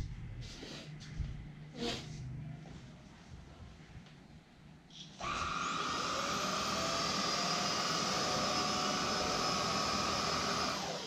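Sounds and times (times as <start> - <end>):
vacuum motor whining: 5.2 - 11.0.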